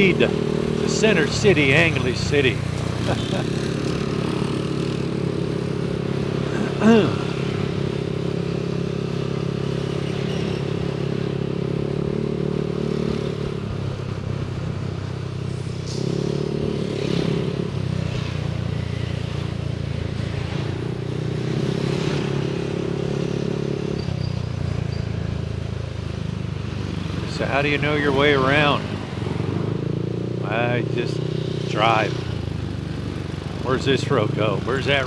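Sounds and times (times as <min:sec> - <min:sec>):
scooter engine running: 0:00.0 - 0:12.3.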